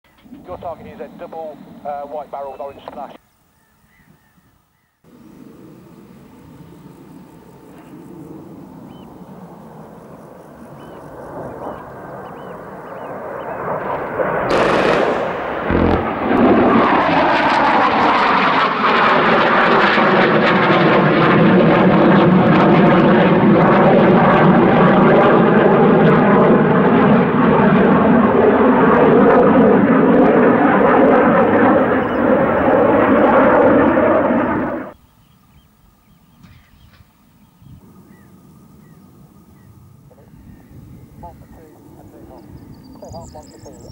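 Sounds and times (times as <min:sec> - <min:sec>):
jet flying past: 0:05.1 - 0:35.0
sharp burst: 0:14.5 - 0:17.1.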